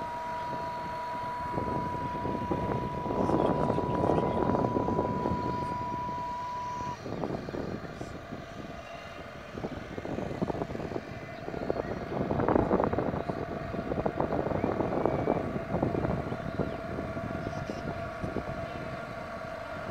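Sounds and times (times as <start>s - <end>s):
high steam whistle: 0.0s - 7.1s
faint low whistle tone: 0.0s - 8.0s, 14.5s - 15.5s.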